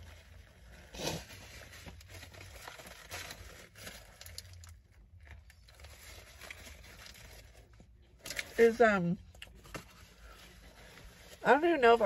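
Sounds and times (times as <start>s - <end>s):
paper wrapper rustling: 0.0s - 8.6s
low steady hum: 0.0s - 12.0s.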